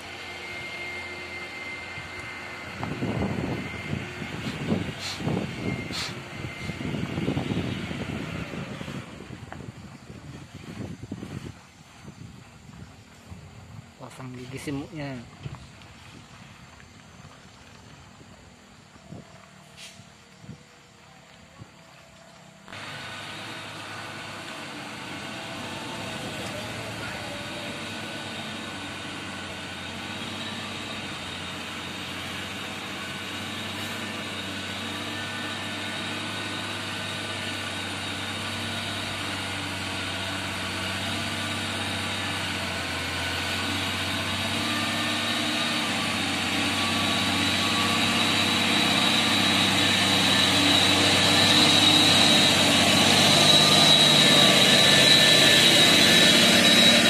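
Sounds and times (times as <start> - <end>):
diesel truck engine working hard: 0.0 - 11.4, 22.6 - 57.0
high whine: 0.0 - 13.4, 22.6 - 57.0.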